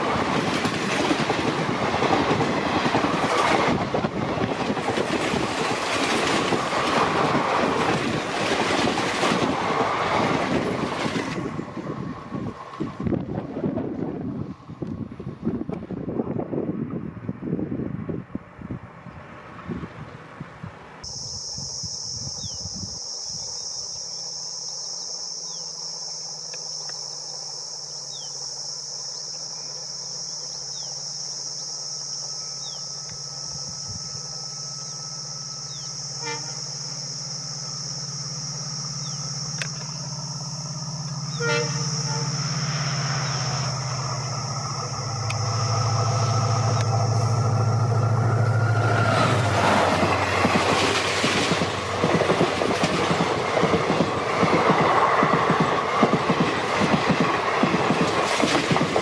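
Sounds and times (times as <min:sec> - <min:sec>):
diesel locomotive engine: 0:00.0 - 0:59.0
steady high-pitched hiss: 0:20.6 - 0:59.0
train horn: 0:32.4 - 0:52.1.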